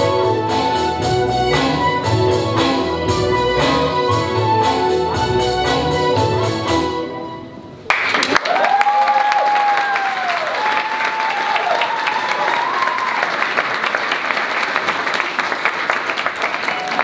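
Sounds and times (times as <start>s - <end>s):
audience applauding: 7.9s - 17.0s
person whooping: 8.4s - 13.4s.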